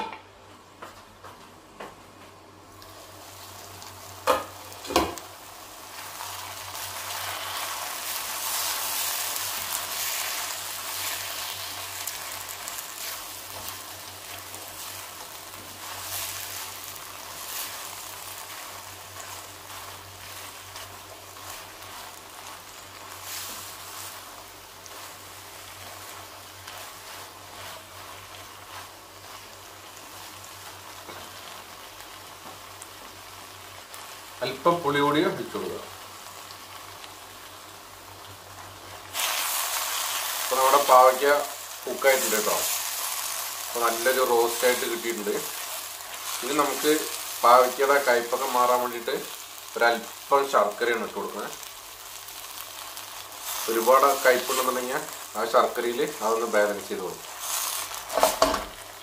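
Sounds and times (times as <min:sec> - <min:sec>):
vegetables sizzling in a wok: 0:02.6 - 0:59.0
spatula stirring in wok: 0:06.3 - 0:31.7.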